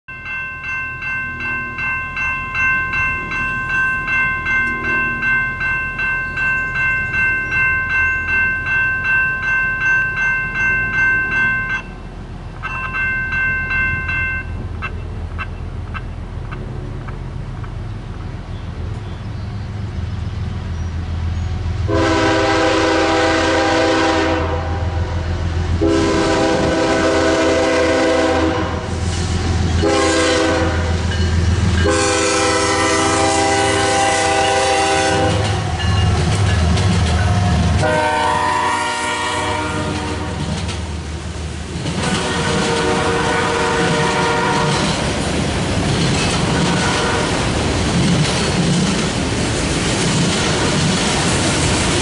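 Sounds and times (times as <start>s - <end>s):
low rumble of locomotive engines: 0.1s - 52.0s
locomotive air horn: 21.9s - 25.2s, 25.8s - 29.0s, 29.8s - 31.0s, 31.8s - 35.6s, 37.8s - 40.5s, 42.0s - 44.9s, 46.6s - 47.5s
freight cars rolling by: 23.6s - 52.0s.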